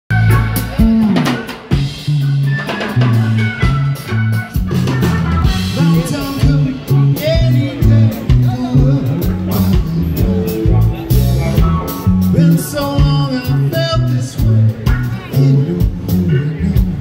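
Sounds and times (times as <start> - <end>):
drum hits: 0.1 - 13.4
bass line: 0.1 - 17.0
live rock band playing: 0.1 - 17.0.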